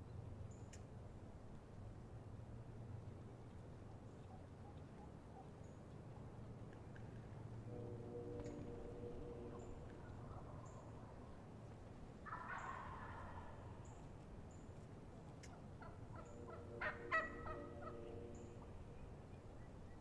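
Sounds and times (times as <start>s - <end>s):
turkey gobbling: 10.0s - 10.9s, 12.2s - 13.7s, 15.4s - 18.1s
hen turkey yelps: 12.3s - 13.6s, 15.5s - 18.0s.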